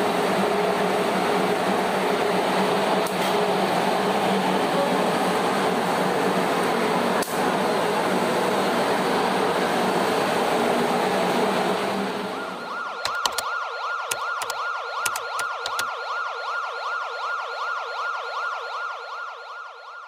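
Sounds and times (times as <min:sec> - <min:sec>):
electronic siren yelp: 0:12.4 - 0:20.0
sharp clicks: 0:13.0 - 0:15.9.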